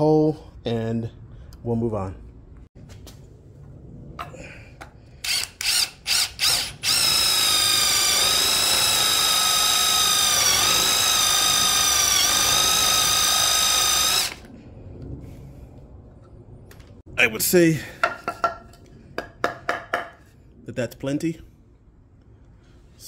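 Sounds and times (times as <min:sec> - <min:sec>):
power drill whining into wood: 0:05.2 - 0:14.5.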